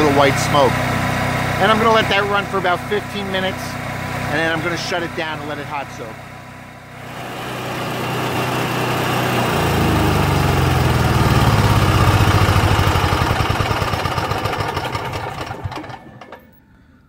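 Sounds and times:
generator engine running: 0.0 - 17.0.

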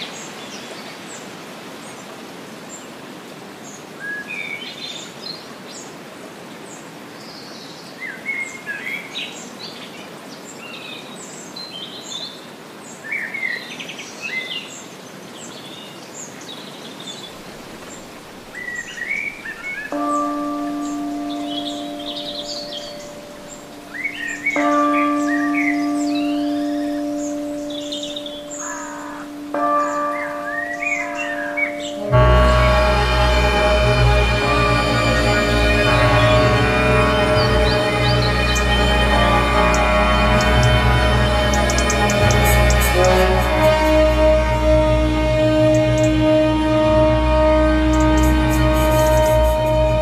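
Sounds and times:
steady background hiss: 0.0 - 50.0
birds chirping and singing: 17.2 - 50.0
bell ringing: 19.9 - 50.0.

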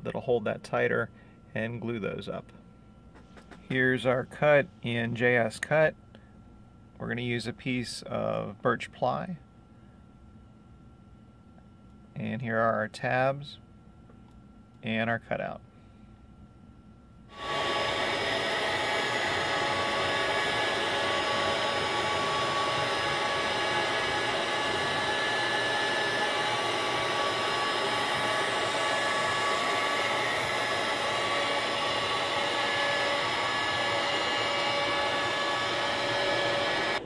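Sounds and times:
router spindle whining while milling: 17.3 - 37.0.

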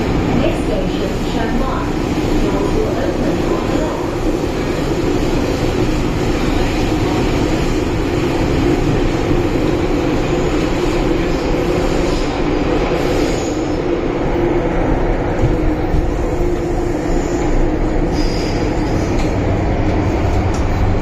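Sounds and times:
train rumble in tunnel: 0.0 - 21.0.

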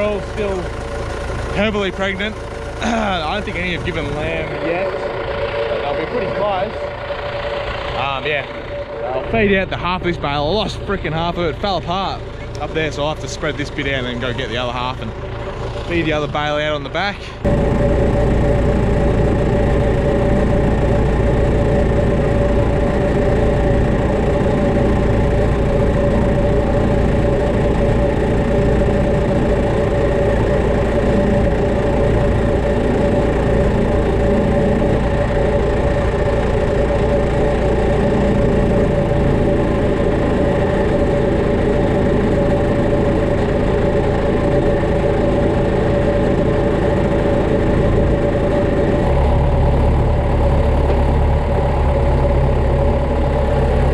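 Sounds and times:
tractor engine idling: 0.0 - 53.9.

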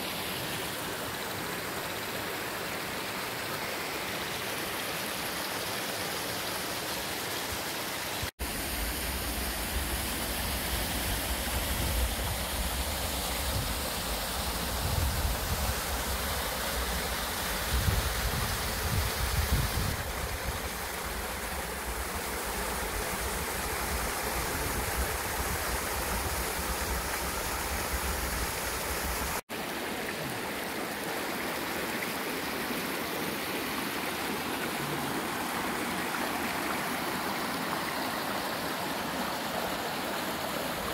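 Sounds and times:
river water rushing over rocks: 20.0 - 40.9.

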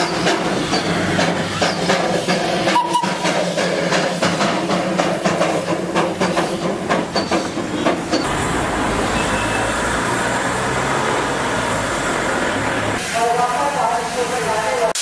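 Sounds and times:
steady steam hiss: 0.0 - 7.7, 11.4 - 15.0
steam locomotive chuffing: 0.0 - 14.6.

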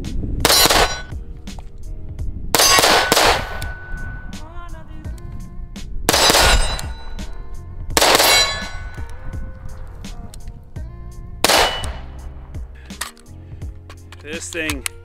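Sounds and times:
gunshots: 0.4 - 1.1, 2.5 - 3.9, 6.1 - 7.1, 8.0 - 9.0, 11.4 - 12.2.

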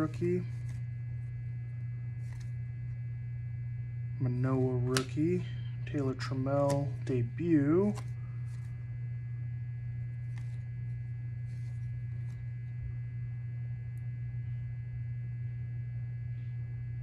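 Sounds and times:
cards rustling as flipped: 0.0 - 1.3, 2.2 - 3.0, 6.6 - 8.8, 10.2 - 12.6
steady low hum: 0.0 - 17.0.

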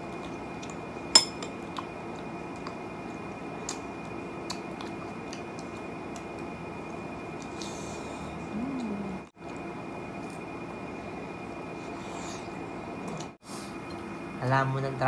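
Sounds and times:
forks clinking against glass dish: 1.2 - 1.6.

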